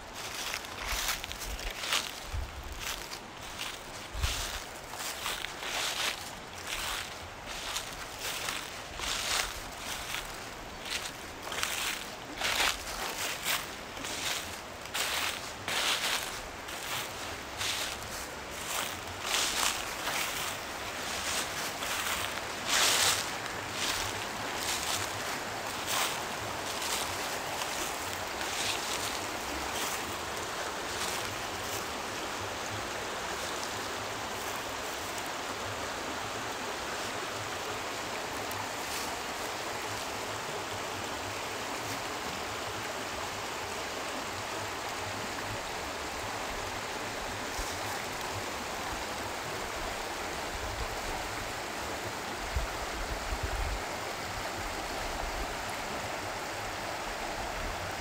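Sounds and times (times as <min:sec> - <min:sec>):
flowing water rushing: 0:00.0 - 0:58.0.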